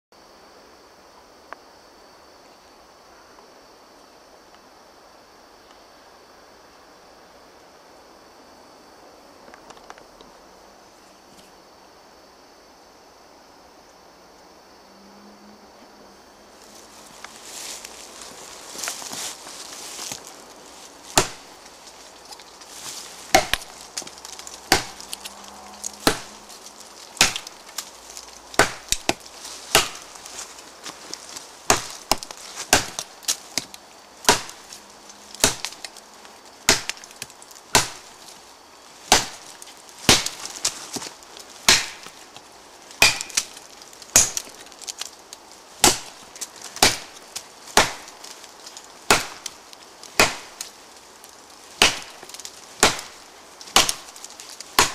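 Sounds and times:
wood splintering: 17.1s - 54.9s
blade chopping wood: 21.1s - 21.5s, 23.3s - 27.9s, 28.5s - 30.2s, 31.6s - 34.8s, 35.4s - 35.9s, 36.6s - 38.1s, 39.1s - 42.2s, 43.0s - 45.1s, 45.8s - 46.2s, 46.8s - 48.2s, 49.0s - 50.7s, 51.8s - 54.9s.

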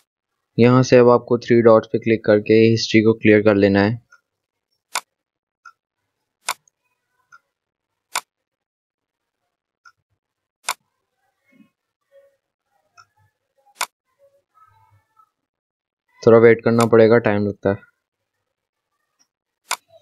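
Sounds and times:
computer mouse clicking: 10.6s - 10.8s.

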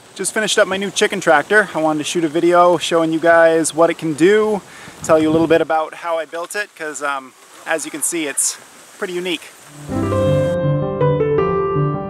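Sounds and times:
keyboard background music: 9.7s - 12.0s.

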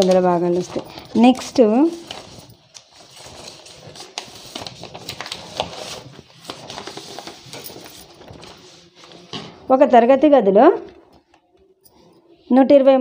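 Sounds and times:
paper rustling and shuffling: 0.0s - 9.7s.

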